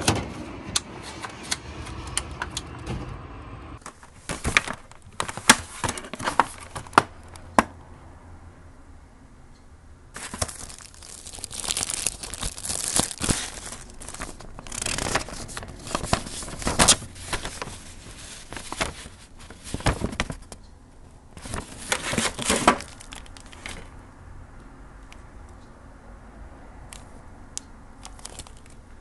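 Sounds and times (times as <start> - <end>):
plastic packaging and paper crinkling: 3.8 - 7.5, 10.2 - 20.6, 21.4 - 24.0, 28.0 - 29.0.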